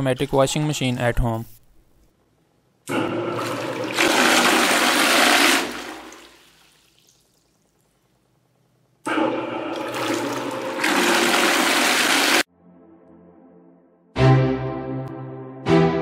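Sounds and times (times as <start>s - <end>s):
motor spinning agitator: 2.9s - 6.2s, 9.1s - 12.4s
water churning in bucket: 2.9s - 7.4s, 9.1s - 12.4s.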